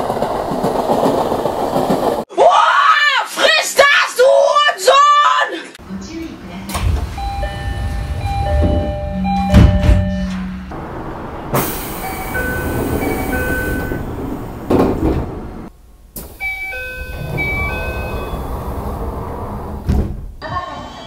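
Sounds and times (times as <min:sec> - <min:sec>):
sliding train doors: 0:00.0 - 0:02.3, 0:06.5 - 0:20.4
train car rumble: 0:00.0 - 0:02.3, 0:05.8 - 0:20.4
two-note door chime beep: 0:07.1 - 0:10.7, 0:16.4 - 0:18.6.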